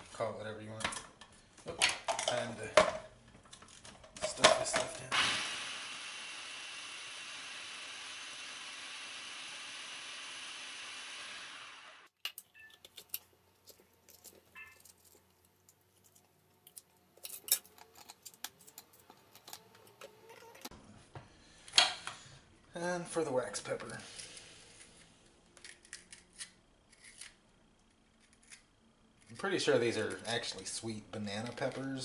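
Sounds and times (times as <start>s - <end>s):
food processor running: 5.1s - 12.1s.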